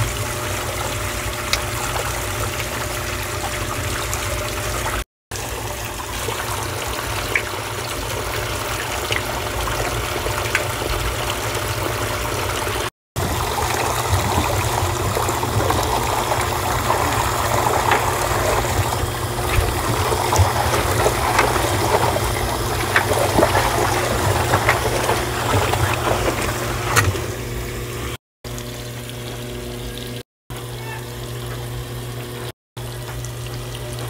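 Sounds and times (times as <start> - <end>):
small water splashes: 0.0 - 30.2
water filling washing machine drum: 0.0 - 34.0.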